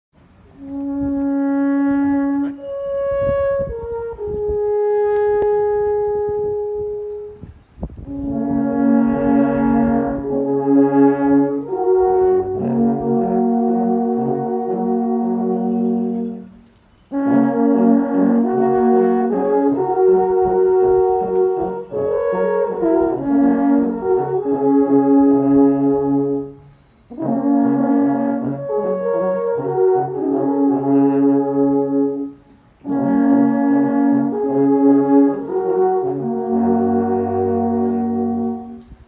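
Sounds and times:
alphorns playing: 0:08.1 - 0:39.0.

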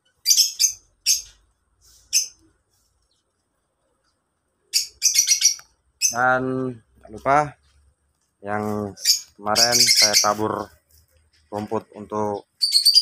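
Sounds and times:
lovebirds chirping: 0:00.0 - 0:13.0.

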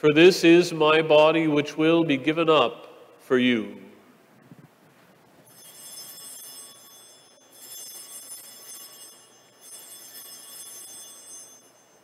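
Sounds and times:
altar bells ringing: 0:05.4 - 0:12.0.

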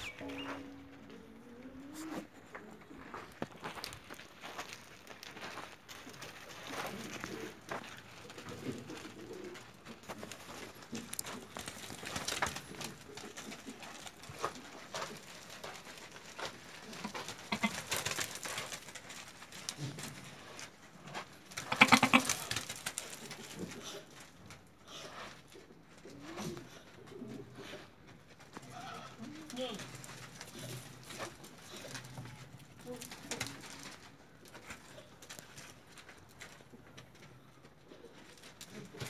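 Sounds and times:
goats calling: 0:17.0 - 0:18.0, 0:21.6 - 0:22.5.

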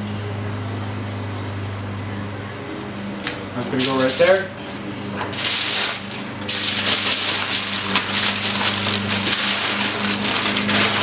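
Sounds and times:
aluminium foil crinkling: 0:03.2 - 0:04.5, 0:05.2 - 0:11.0.

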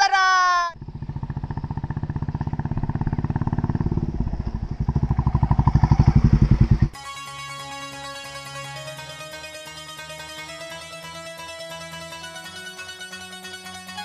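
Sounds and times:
motorcycle engine passing: 0:00.7 - 0:07.0
music with plucked keyboard notes: 0:07.0 - 0:14.0.

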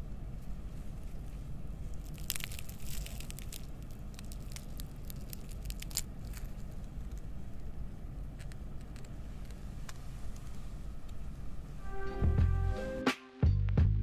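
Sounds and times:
low steady rumble: 0:00.0 - 0:14.0
crispy cracker crackling and crunching: 0:00.9 - 0:09.6.

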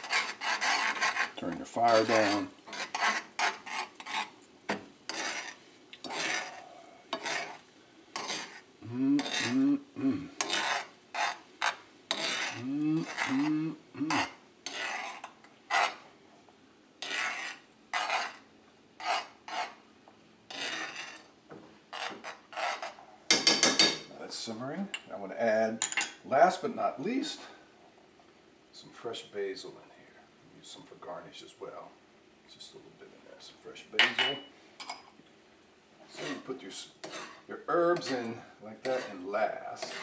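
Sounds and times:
metal utensil scraping skillet: 0:00.0 - 0:09.8, 0:10.4 - 0:16.0, 0:17.0 - 0:19.8, 0:20.5 - 0:21.3, 0:21.9 - 0:24.0, 0:36.0 - 0:40.0.

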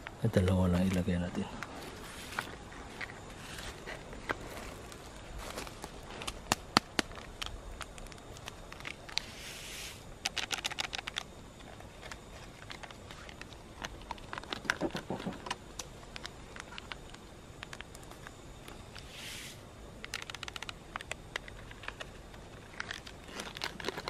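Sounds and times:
sachet rustle: 0:10.2 - 0:18.3, 0:20.0 - 0:24.0.

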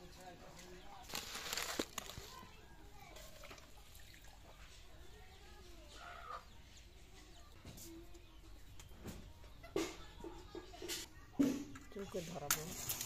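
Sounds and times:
chickens clucking: 0:02.1 - 0:12.3.

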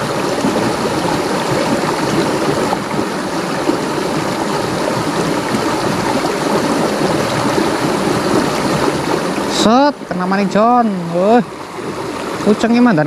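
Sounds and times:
river rushing over stones: 0:00.0 - 0:13.0.

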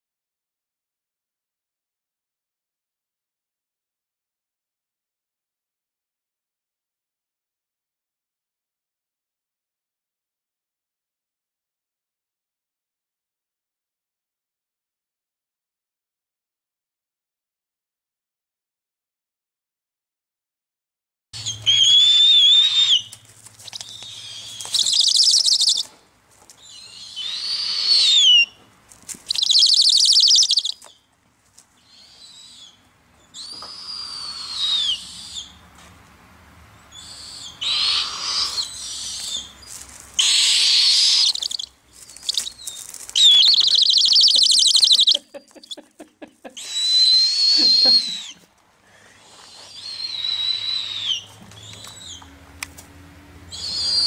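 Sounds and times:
owlets raspy screeches: 0:21.4 - 0:25.9, 0:26.8 - 0:28.6, 0:37.1 - 0:45.2, 0:46.6 - 0:48.4, 0:49.2 - 0:52.2, 0:53.5 - 0:54.0
owlets whistling calls: 0:21.4 - 0:25.9, 0:26.6 - 0:28.6, 0:29.3 - 0:30.9, 0:31.9 - 0:35.5, 0:37.0 - 0:39.6, 0:40.2 - 0:45.8, 0:46.6 - 0:48.4, 0:49.5 - 0:52.2, 0:53.5 - 0:54.0.

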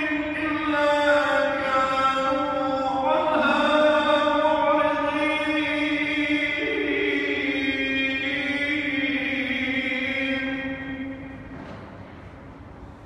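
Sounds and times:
man chanting melodically: 0:00.0 - 0:11.5.

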